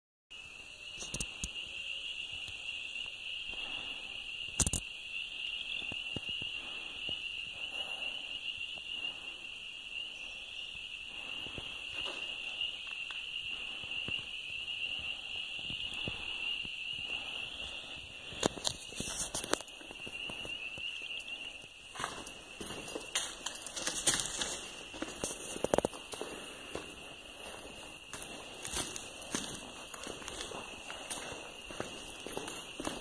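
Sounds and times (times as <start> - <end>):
insects droning: 0.3 - 33.0
footsteps crunching on grit: 21.9 - 33.0.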